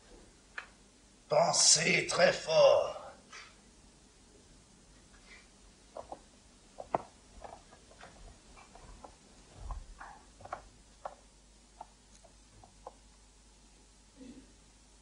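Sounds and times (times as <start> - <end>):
footsteps on stage floor: 5.3 - 11.3.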